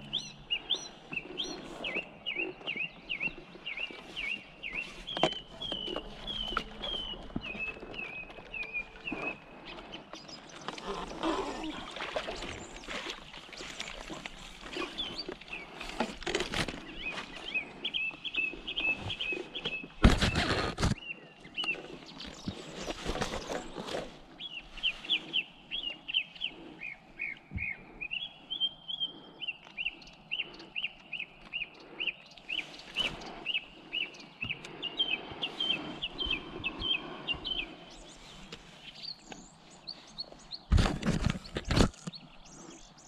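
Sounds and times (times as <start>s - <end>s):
songbird chirping: 0.0s - 43.0s
handling rustle: 21.6s - 25.4s.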